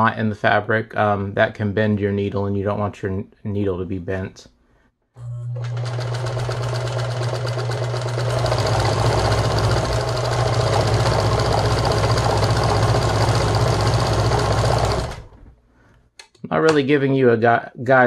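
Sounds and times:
sewing machine motor hum: 5.2 - 15.6
sewing needle clatter: 5.7 - 15.4.

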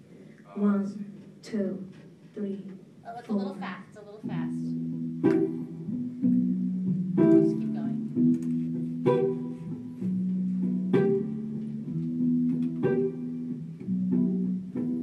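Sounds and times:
electric guitar chords: 4.2 - 15.0
keyboard chords: 4.2 - 15.0.

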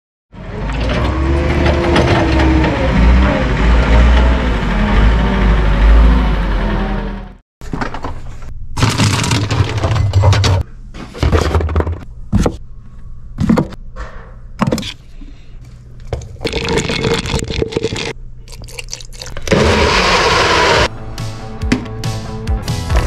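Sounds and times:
blender running: 19.4 - 20.9.

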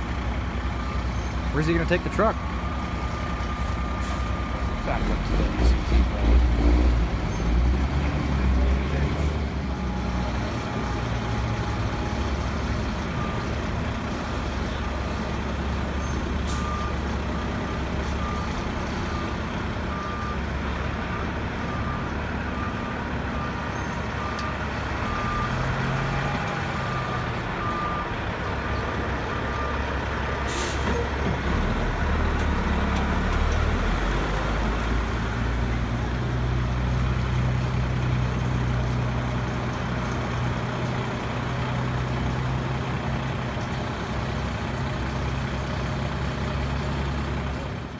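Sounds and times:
diesel truck engine running: 0.0 - 47.9
air brake hiss: 30.5 - 31.0.

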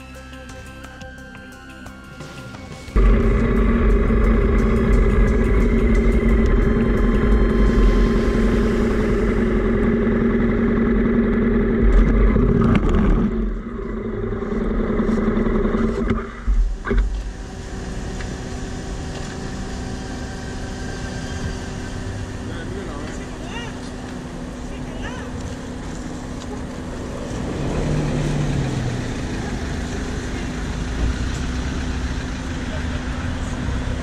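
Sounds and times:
motorcycle engine idling: 2.7 - 12.2, 29.0 - 34.0.

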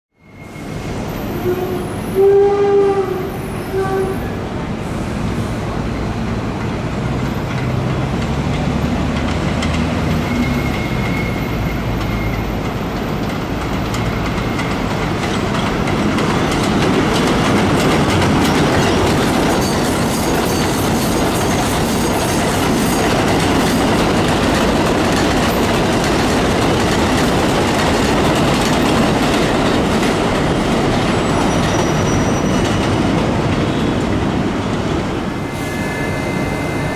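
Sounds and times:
train wheels clattering on rails: 5.2 - 35.6
faint wheel squeal: 10.2 - 12.5, 31.2 - 32.8.

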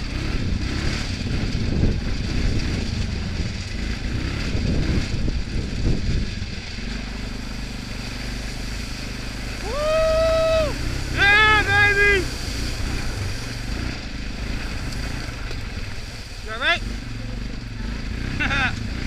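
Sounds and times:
atv engine running over gravel: 0.0 - 19.0.

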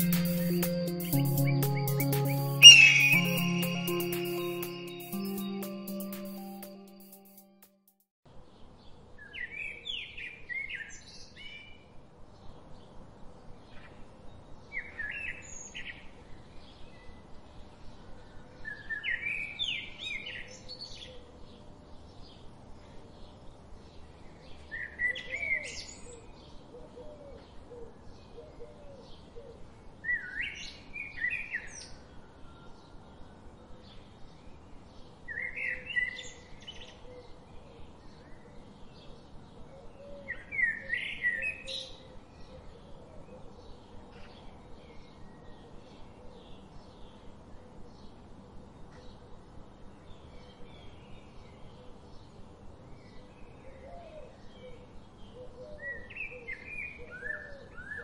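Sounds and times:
bird warbling song: 1.4 - 3.4.

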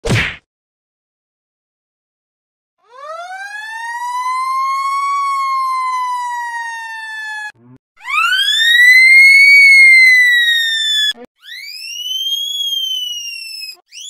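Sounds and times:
fire truck siren wail: 2.8 - 11.3.

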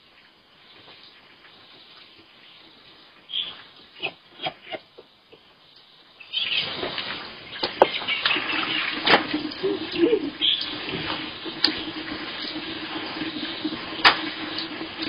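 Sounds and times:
water poured and splashing: 6.5 - 15.0.

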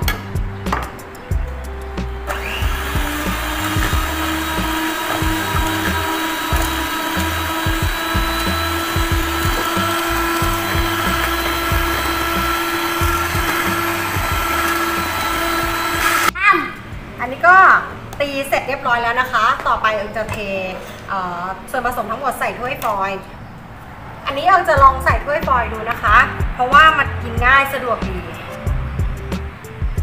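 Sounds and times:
electric hand mixer whirring: 2.3 - 16.4.

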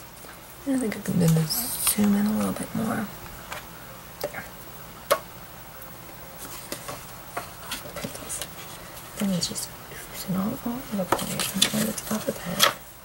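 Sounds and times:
paper and craft supplies tapping: 11.0 - 12.8.

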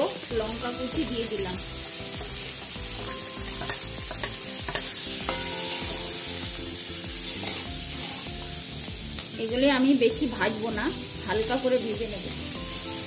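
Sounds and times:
vegetables sizzling in oil: 0.0 - 13.0
metal spatula scraping pan: 3.0 - 6.2, 7.3 - 8.3.

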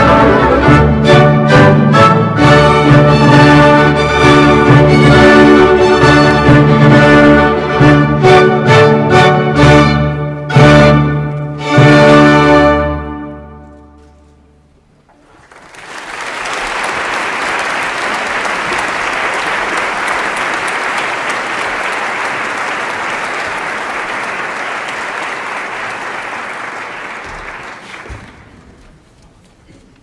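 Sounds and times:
audience applause: 15.1 - 28.7.

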